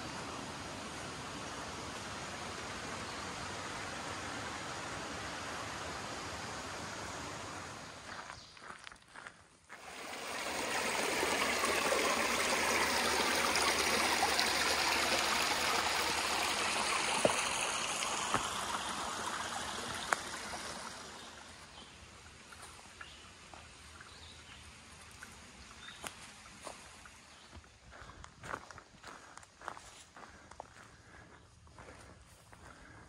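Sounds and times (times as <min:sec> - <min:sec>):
stream rushing over stones: 0:09.7 - 0:22.8.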